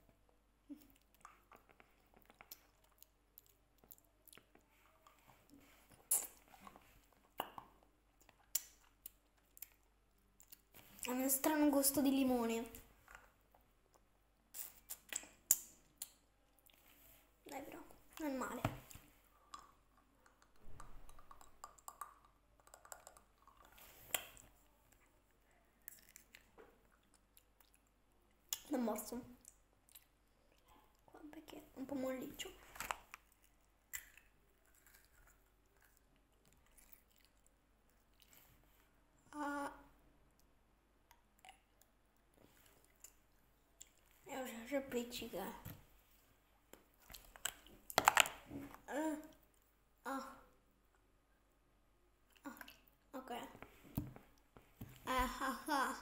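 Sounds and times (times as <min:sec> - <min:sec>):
wet mouth clicks and smacks: 0:00.8 - 0:04.6, 0:06.0 - 0:10.7, 0:13.9 - 0:16.8, 0:18.9 - 0:24.5, 0:32.8 - 0:37.5, 0:46.7 - 0:48.4
child sucking a lollipop: 0:06.0 - 0:06.8, 0:14.5 - 0:16.1
candy clicking against teeth: 0:07.4 - 0:09.8, 0:14.6 - 0:16.2, 0:19.5 - 0:24.4.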